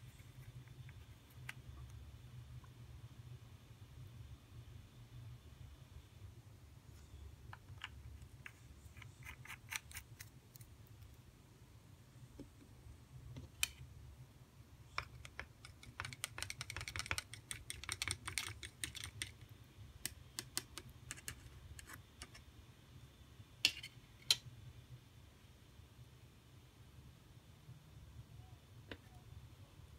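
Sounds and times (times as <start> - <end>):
plastic stick ticking in cup: 14.9 - 19.4.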